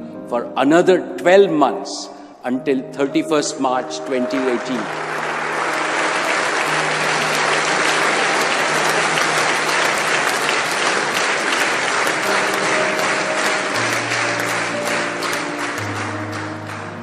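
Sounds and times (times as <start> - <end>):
audience applauding: 4.1 - 17.0.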